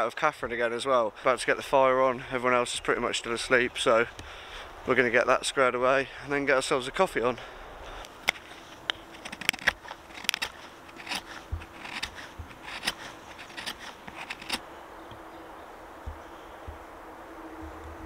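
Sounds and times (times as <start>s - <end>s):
campfire crackling: 7.4s - 18.0s.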